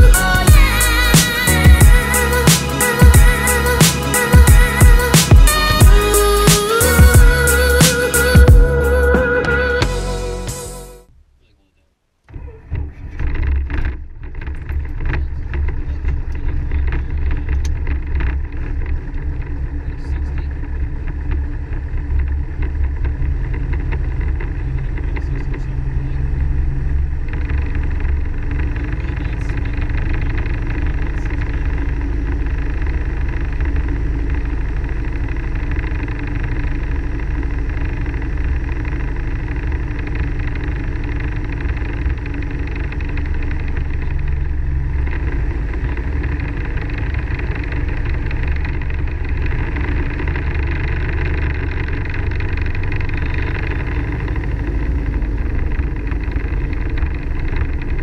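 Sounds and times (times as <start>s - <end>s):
helicopter engine and rotor running: 13.8s - 58.0s.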